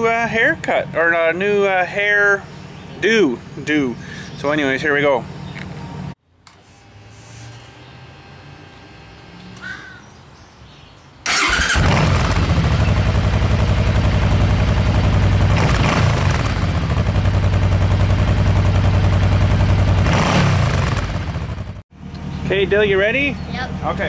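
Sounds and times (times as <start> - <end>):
motorcycle engine idling: 0.0 - 6.1, 11.3 - 24.0
bird call: 9.4 - 11.0.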